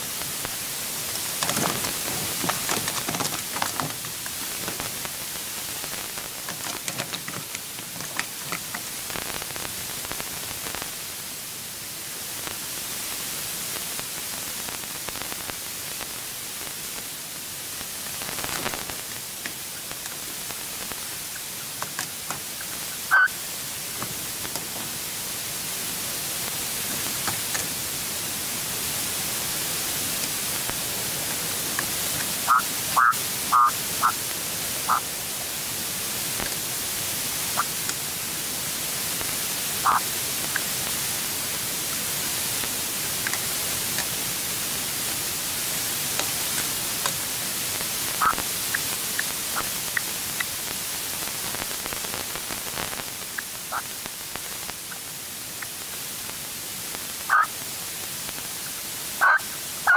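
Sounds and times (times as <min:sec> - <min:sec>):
steady hiss: 0:00.0 - 0:59.9
partridge chirping: 0:32.4 - 0:34.2.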